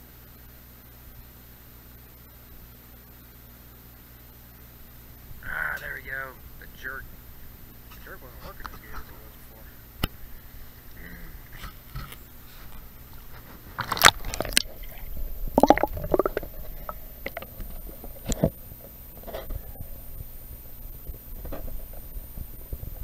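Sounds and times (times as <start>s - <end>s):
muffled underwater water gurgling: 14.0s - 23.0s.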